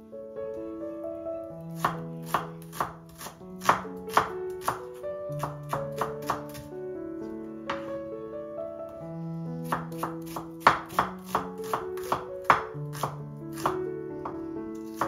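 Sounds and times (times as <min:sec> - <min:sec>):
background music with held notes: 0:00.0 - 0:15.0
knife slicing onions on board: 0:01.8 - 0:06.7, 0:09.6 - 0:15.0.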